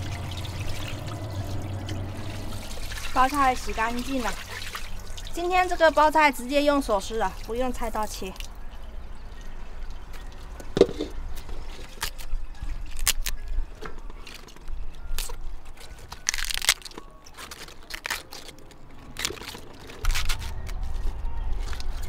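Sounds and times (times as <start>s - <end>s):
cabbage leaves snapping and ripping: 11.8s - 13.6s, 14.2s - 22.0s.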